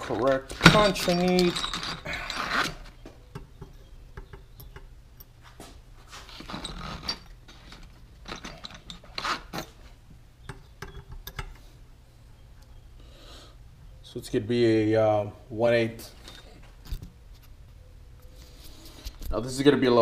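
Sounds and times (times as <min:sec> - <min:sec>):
hand tools clicking and scraping: 0:00.0 - 0:11.7.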